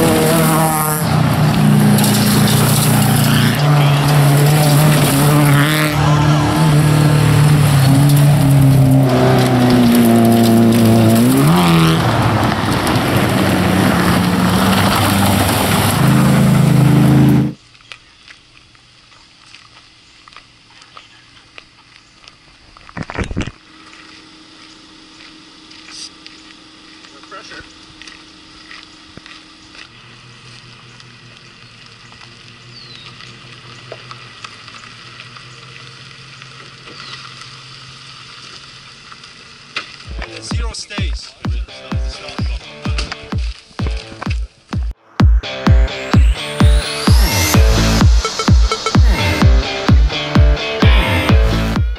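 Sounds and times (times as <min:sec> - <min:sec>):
rally car engine revving: 0:00.0 - 0:17.6, 0:40.1 - 0:51.9
second vehicle engine: 0:00.0 - 0:18.3, 0:23.4 - 0:51.9
tyres hissing on gravel: 0:00.0 - 0:23.0, 0:23.6 - 0:51.7.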